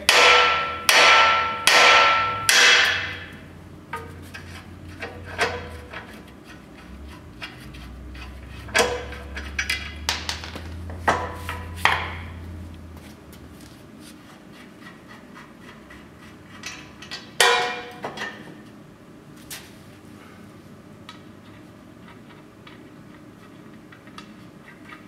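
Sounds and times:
hammer striking steel: 0.0 - 3.4, 17.4 - 18.0.

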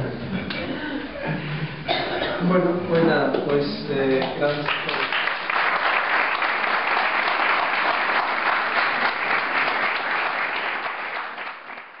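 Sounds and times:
audience applauding: 4.1 - 12.0.

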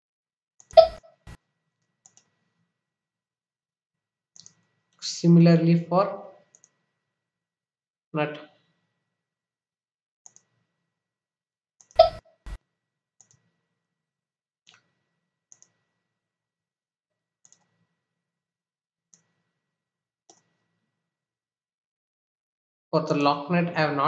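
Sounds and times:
computer mouse clicking: 2.0 - 2.3, 4.4 - 4.6, 17.4 - 17.7.

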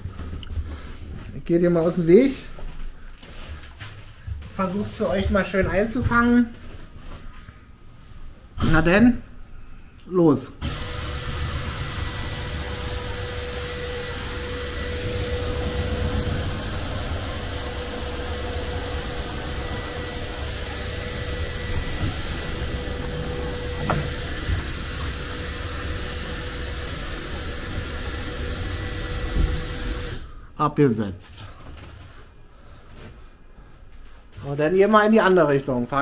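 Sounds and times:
lift motor humming: 10.6 - 30.3.

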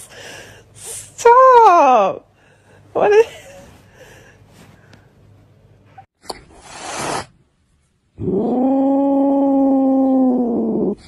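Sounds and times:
brief rising hiss: 6.6 - 7.4.

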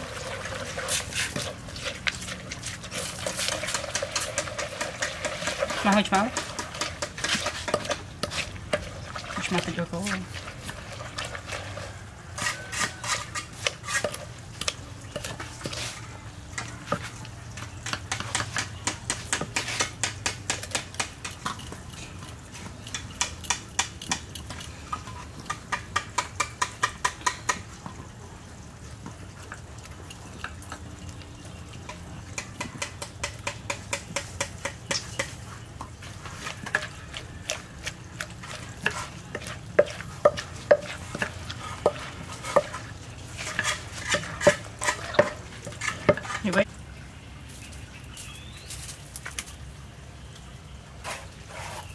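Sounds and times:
wooden pestle pounding in mortar: 38.2 - 42.8.

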